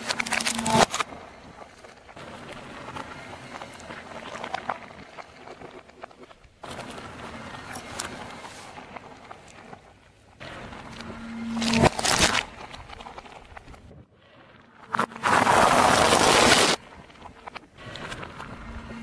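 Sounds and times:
plastic cracking under car tyre: 0.0 - 2.2, 10.9 - 13.9.

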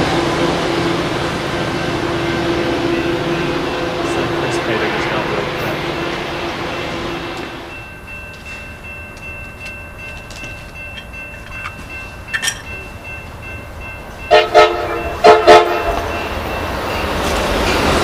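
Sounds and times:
train rumble: 0.0 - 18.0
train horn blasts: 14.3 - 16.2.

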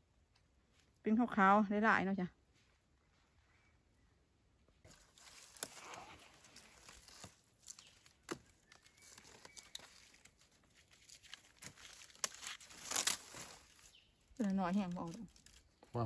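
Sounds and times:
dry leaves rustling and crackling: 4.9 - 16.0
twigs snapping: 4.9 - 16.0.

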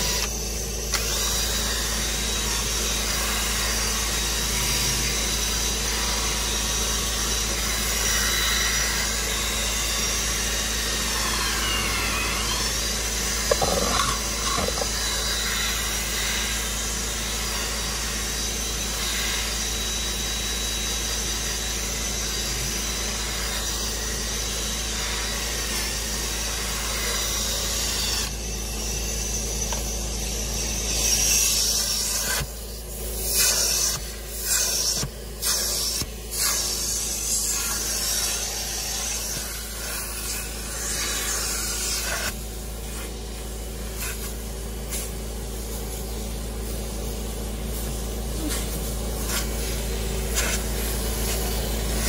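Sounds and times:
drill spinning scrub brush: 0.0 - 52.0
extractor wand spraying hiss: 30.9 - 52.0.

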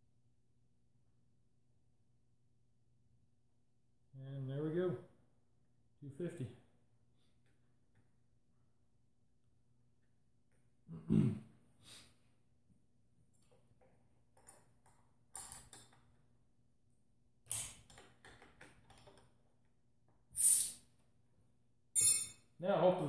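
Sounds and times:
small metal clicks and knocks: 13.4 - 16.2, 17.5 - 19.5
short sharp gas hisses: 20.3 - 20.9.

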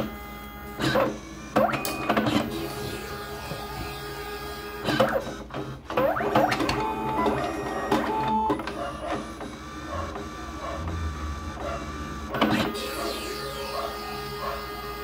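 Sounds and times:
card printer motors whirring: 0.0 - 15.0
printer mechanism clicking: 4.8 - 11.0.

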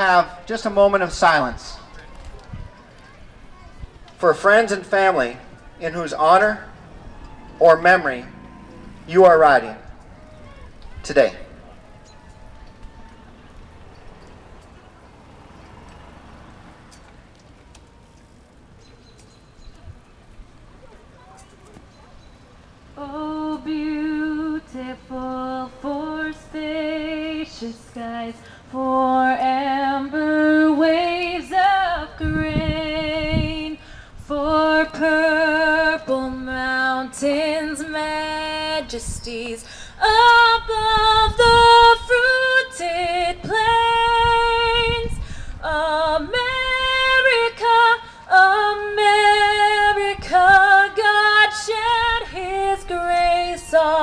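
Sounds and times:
woman singing unaccompanied: 22.8 - 54.0.

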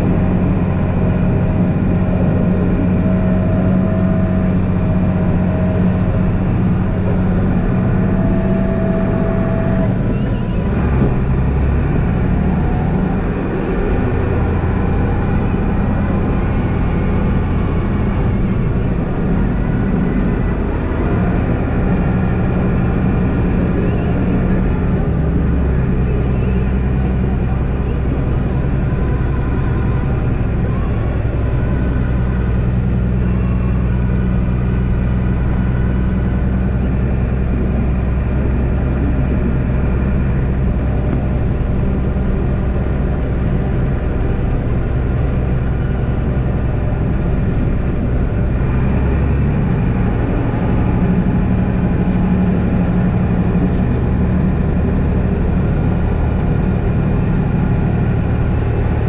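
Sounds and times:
diesel truck engine under load: 0.0 - 59.0.

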